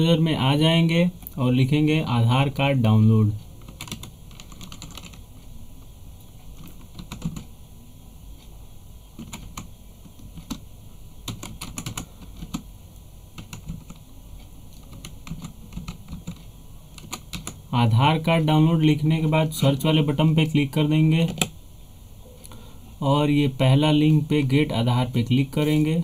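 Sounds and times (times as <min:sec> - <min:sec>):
faint low hum: 0:00.0 - 0:26.0
keyboard typing: 0:03.6 - 0:05.5, 0:06.5 - 0:07.5, 0:09.2 - 0:12.7, 0:13.4 - 0:17.7.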